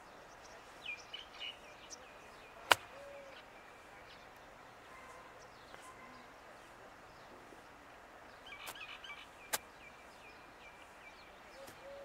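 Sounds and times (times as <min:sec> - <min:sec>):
faint bird chirps: 0:08.3 - 0:12.0.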